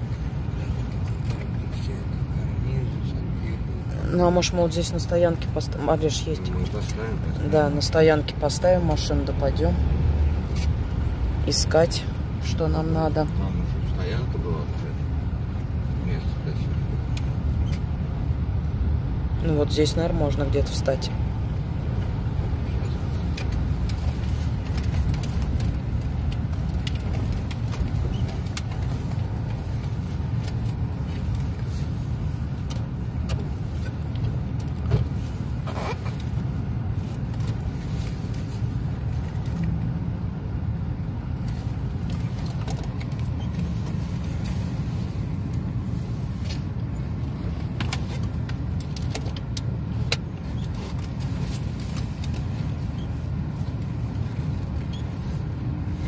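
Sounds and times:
engine and tyre rumble: 0.0 - 56.0.

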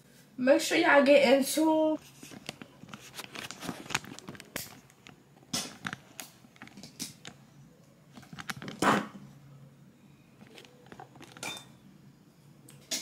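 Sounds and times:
rustling: 2.0 - 7.4, 10.4 - 11.5.

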